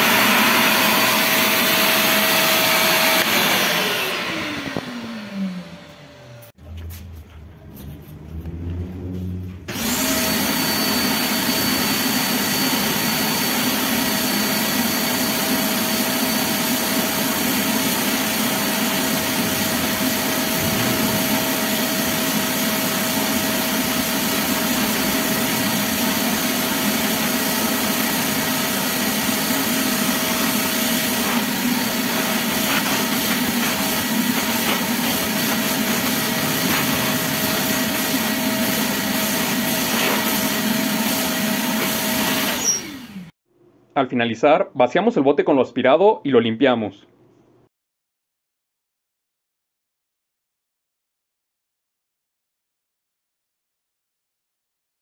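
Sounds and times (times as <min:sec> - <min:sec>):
vacuum cleaner whining: 0:00.0 - 0:06.6, 0:08.3 - 0:43.4.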